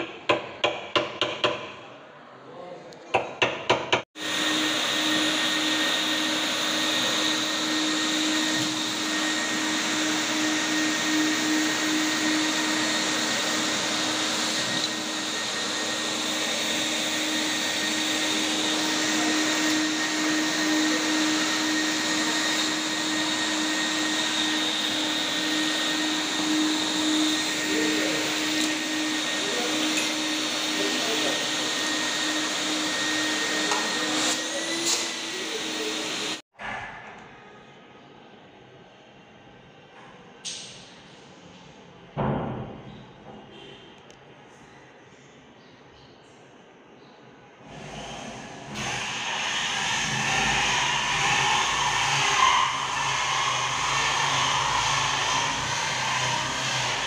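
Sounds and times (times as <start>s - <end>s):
vacuum cleaner running: 4.1s - 36.5s, 47.6s - 57.0s.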